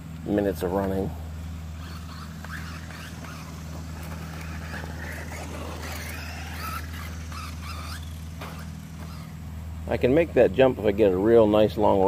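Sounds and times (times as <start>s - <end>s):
steady low hum: 0.0s - 12.0s
rc truck motor whining: 1.5s - 9.7s.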